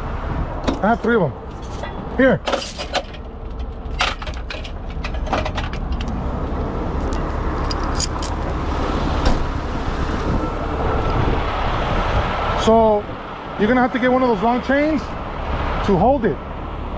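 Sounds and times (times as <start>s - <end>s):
steel chain clinking: 1.5s - 6.1s, 7.1s - 8.7s
diesel truck engine idling: 4.6s - 16.9s.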